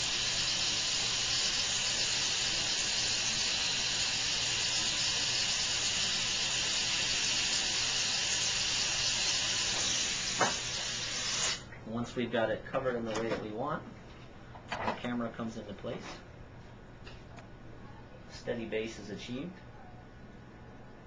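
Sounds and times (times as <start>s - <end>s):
dental air equipment hissing: 0.0s - 11.7s.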